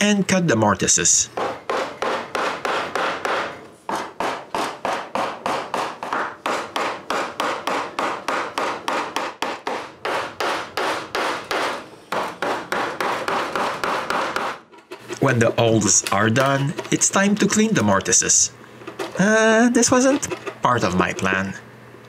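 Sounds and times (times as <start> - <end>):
chisel being struck: 1.4 - 14.7.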